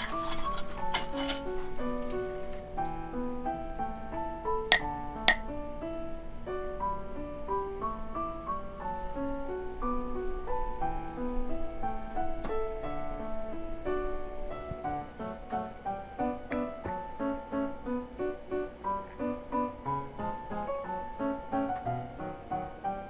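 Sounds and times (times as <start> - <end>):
metal spoon clinking on dish: 0.0 - 1.5, 4.7 - 5.5
light instrumental music: 0.0 - 23.0.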